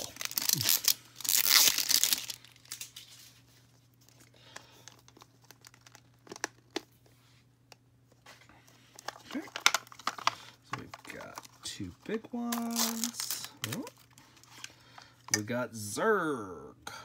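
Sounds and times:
plastic wrap tearing and crinkling: 0:00.0 - 0:03.5, 0:04.8 - 0:06.8, 0:12.4 - 0:14.5.

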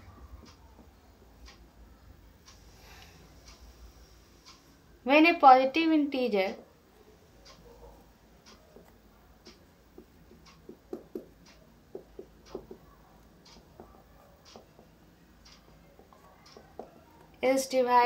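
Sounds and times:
marker squeaking on whiteboard: 0:08.5 - 0:17.2.

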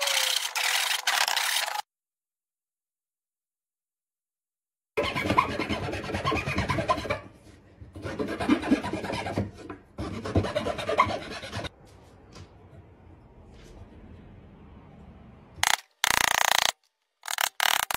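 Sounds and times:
handsaw cutting wood: 0:05.0 - 0:07.2, 0:10.0 - 0:11.7.

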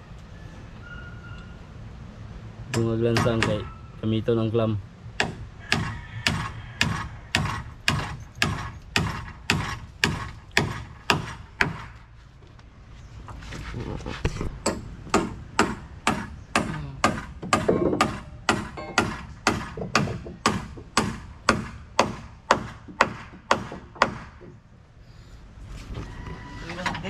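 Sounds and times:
hammer driving nails into wood: 0:02.7 - 0:03.7, 0:05.2 - 0:12.0, 0:14.6 - 0:24.6.

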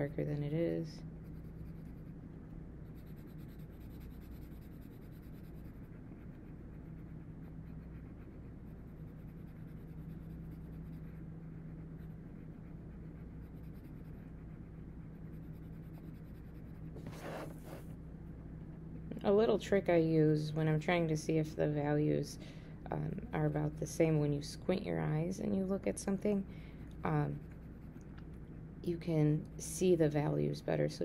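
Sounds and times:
low hum: 0:00.0 - 0:31.0
pencil scratching on paper: 0:00.5 - 0:02.2, 0:02.8 - 0:17.9.

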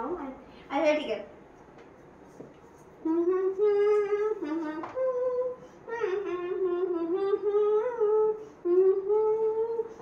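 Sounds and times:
girl humming a tune: 0:03.0 - 0:10.0.

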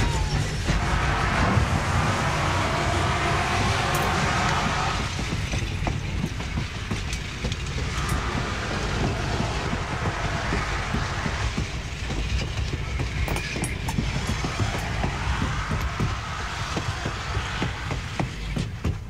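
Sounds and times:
train rumbling on track: 0:00.0 - 0:19.0.

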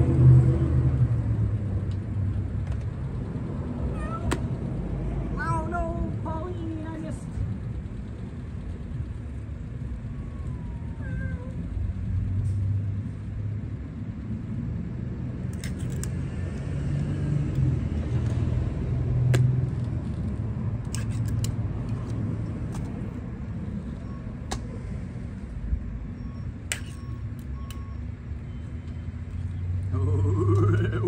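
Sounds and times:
low vehicle rumble: 0:00.0 - 0:31.0
cat meowing: 0:03.9 - 0:04.4, 0:10.5 - 0:11.6.

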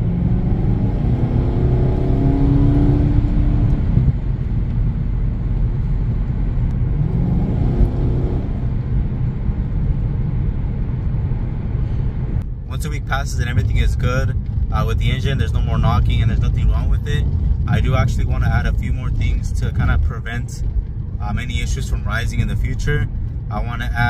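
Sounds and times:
car engine accelerating: 0:00.0 - 0:11.6
low road rumble: 0:00.0 - 0:24.0.

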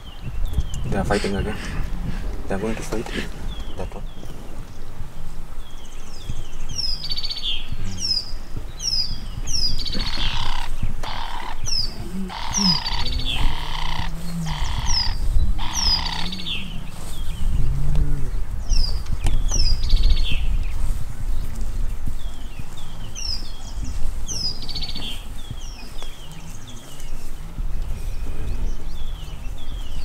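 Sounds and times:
bird chirping: 0:05.6 - 0:17.6
harsh rasping bursts: 0:10.0 - 0:11.6.

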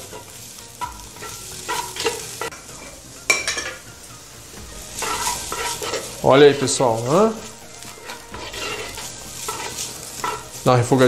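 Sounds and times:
bacon sizzling: 0:00.0 - 0:11.0
wooden spatula scraping a pot: 0:04.8 - 0:10.7.

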